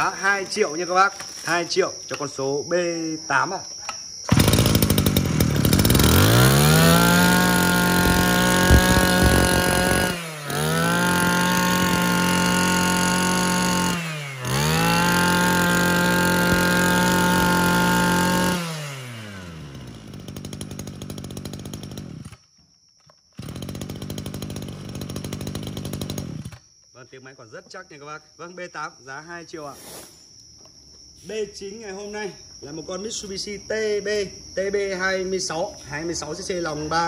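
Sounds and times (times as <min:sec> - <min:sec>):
brush-cutter engine revving: 0:04.2 - 0:22.5, 0:23.4 - 0:26.6.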